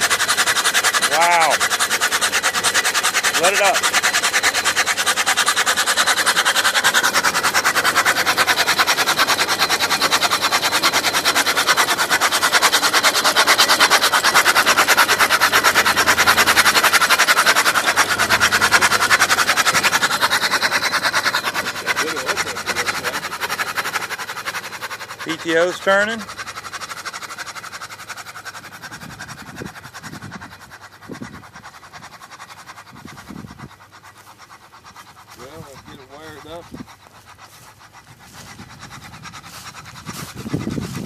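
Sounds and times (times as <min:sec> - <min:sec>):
tractor engine turning over: 0:00.0 - 0:31.0.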